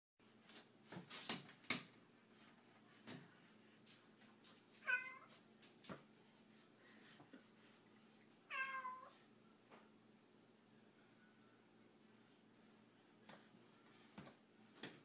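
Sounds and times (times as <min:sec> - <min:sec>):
cat meowing: 0:04.8 - 0:05.3, 0:08.5 - 0:09.1.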